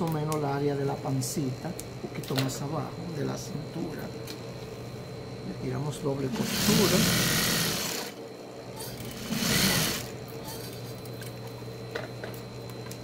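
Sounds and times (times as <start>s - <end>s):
motor humming: 6.0s - 13.0s
sewing machine stitching: 9.2s - 10.1s.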